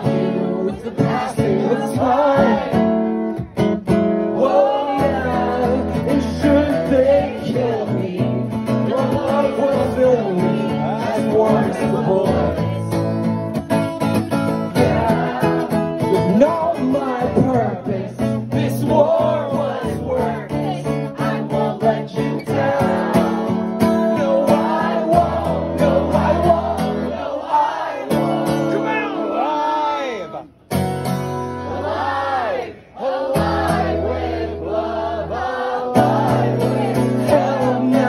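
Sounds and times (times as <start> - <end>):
man singing: 0.0 - 2.8, 4.3 - 13.0, 14.7 - 26.9, 36.0 - 38.0
acoustic guitar strumming: 0.0 - 29.6, 30.2 - 38.0.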